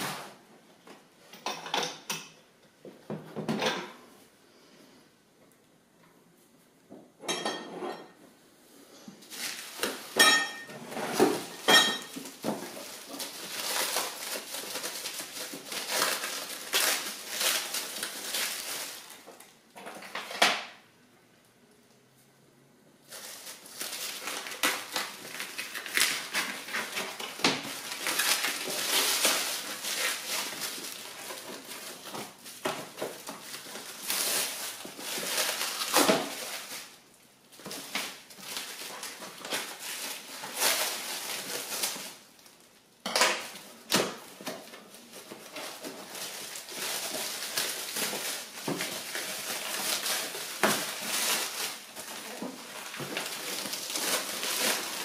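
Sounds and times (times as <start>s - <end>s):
packaging crinkling and rustling: 9.0s - 20.8s, 23.0s - 55.0s.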